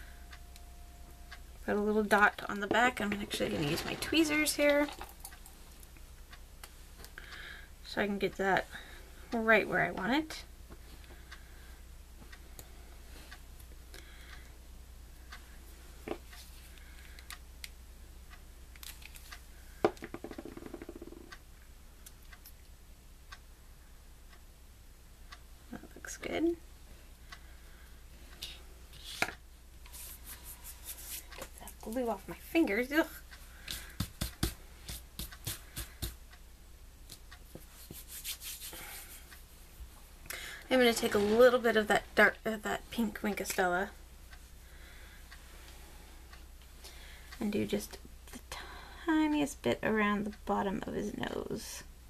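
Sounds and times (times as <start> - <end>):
tweezers clicking and tapping: 33.6 - 36.2.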